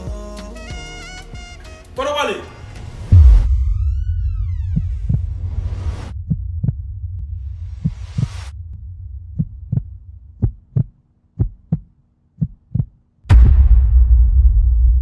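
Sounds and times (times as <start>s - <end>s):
low hum: 2.6s - 15.0s
heartbeat thumps: 3.1s - 15.0s.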